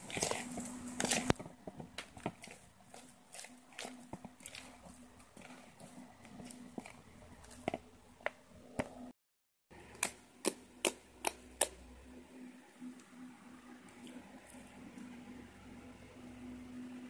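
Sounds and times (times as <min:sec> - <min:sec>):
spoon stirring slime in plastic bowl: 0:00.0 - 0:09.1, 0:09.8 - 0:12.2, 0:13.8 - 0:15.5
faint steady hum: 0:09.7 - 0:17.0.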